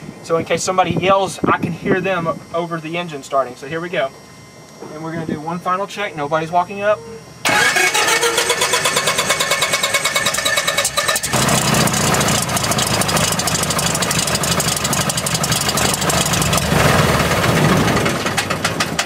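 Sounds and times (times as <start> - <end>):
aircraft engine starting: 7.4 - 19.0.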